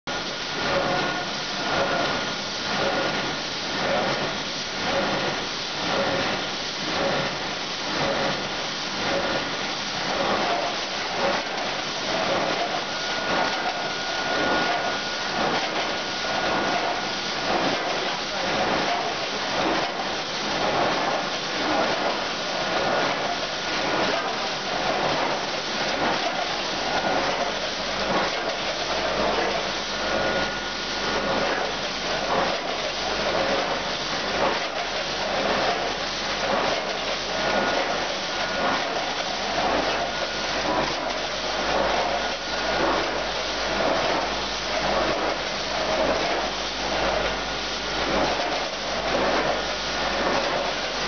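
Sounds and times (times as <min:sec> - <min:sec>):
mechanical rush of weighing machine: 0:10.1 - 0:51.0
faint steady whine: 0:12.6 - 0:17.5.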